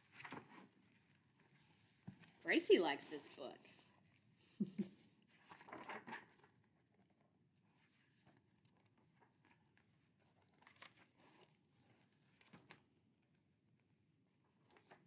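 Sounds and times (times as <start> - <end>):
papery rustle of book pages: 0.0 - 4.2, 5.2 - 6.7, 7.6 - 12.9, 14.6 - 15.0.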